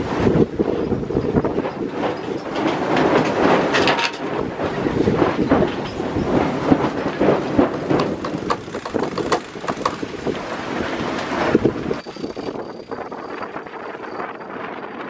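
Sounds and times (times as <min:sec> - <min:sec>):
wind buffeting microphone: 0:00.0 - 0:15.0
winch clicking: 0:07.4 - 0:14.0.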